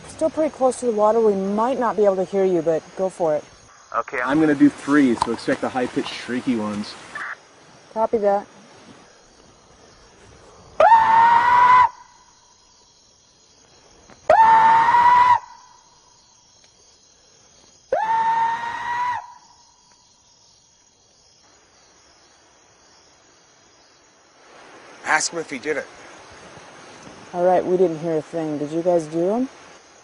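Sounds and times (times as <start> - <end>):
insects trilling: 0.0 - 30.0
high-pitched shrieking calls: 14.3 - 15.8.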